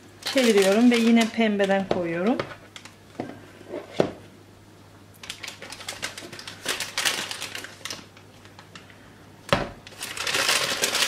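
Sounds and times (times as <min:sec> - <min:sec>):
plastic piping bag rustling: 0:00.0 - 0:03.0, 0:05.2 - 0:08.9, 0:09.9 - 0:11.0.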